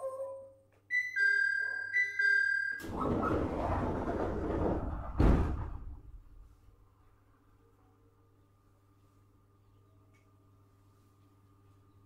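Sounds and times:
two-tone door chime: 0.9s - 3.0s
sliding doors rushing air: 2.8s - 6.6s.

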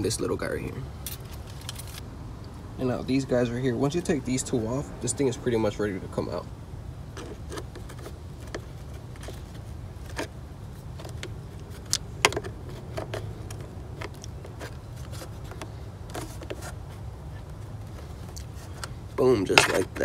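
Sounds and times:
screwdriver prying plastic: 11.0s - 16.6s.

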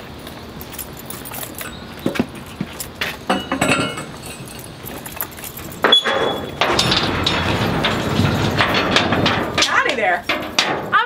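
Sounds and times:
chain and latch clinking: 0.2s - 11.0s
short metallic rings: 3.3s - 11.0s.

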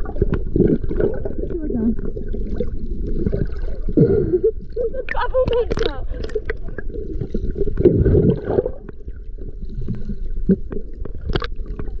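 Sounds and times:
muffled underwater water noise: 0.0s - 12.0s.

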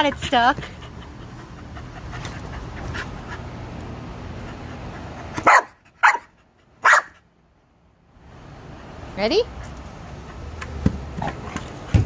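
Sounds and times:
dog barking: 5.4s - 7.2s.

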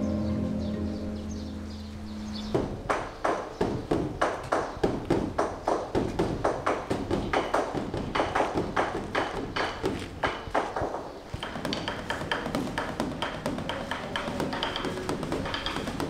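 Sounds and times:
sustained ringing tone: 0.0s - 2.4s
temple drum beaten with sticks: 11.4s - 16.0s.

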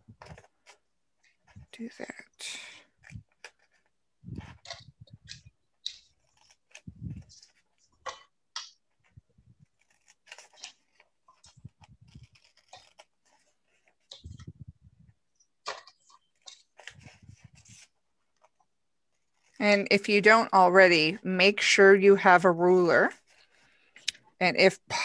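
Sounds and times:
paper rustling: 0.0s - 19.6s
scissors snipping paper: 3.0s - 8.8s, 9.6s - 14.5s.

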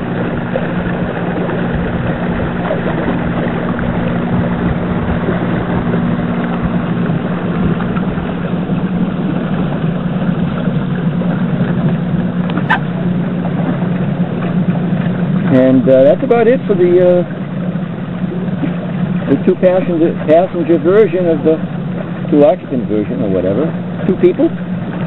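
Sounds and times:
electric boat motor humming: 0.0s - 25.0s
water rushing and splashing: 0.0s - 25.0s.

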